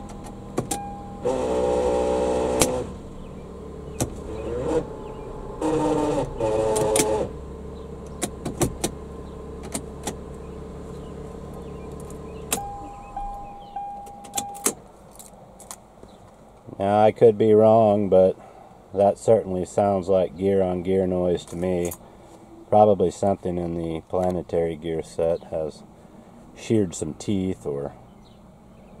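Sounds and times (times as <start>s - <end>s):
transmission grinding: 0.0s - 16.2s
car engine idling: 0.0s - 29.0s
shift lever clicks: 13.9s - 14.8s.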